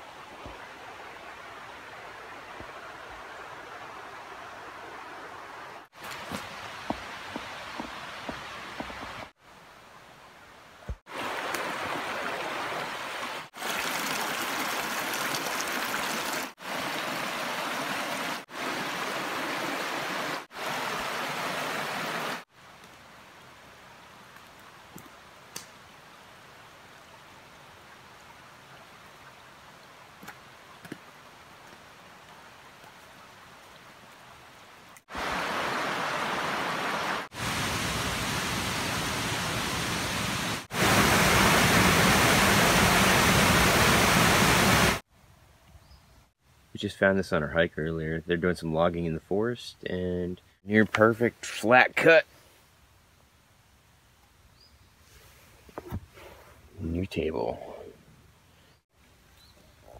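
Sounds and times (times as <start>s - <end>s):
stream water rushing over rocks: 0.0s - 9.7s, 10.8s - 22.9s, 26.4s - 45.0s
waterfall pouring into pool: 11.1s - 22.5s, 35.1s - 45.0s.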